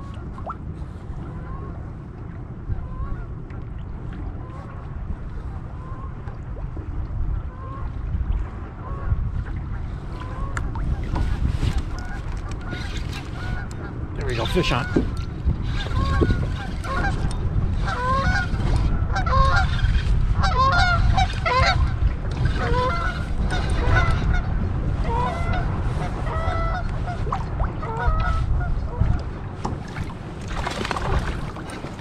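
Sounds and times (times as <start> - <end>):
wind rumble on microphone: 0.0 - 32.0
geese honking: 12.0 - 15.1, 15.8 - 17.2, 17.8 - 19.8, 22.5 - 24.3.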